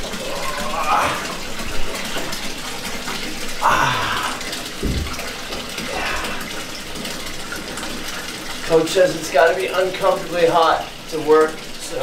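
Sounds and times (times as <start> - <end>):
water running into bathtub: 0.0 - 12.0
low thump: 4.8 - 5.3.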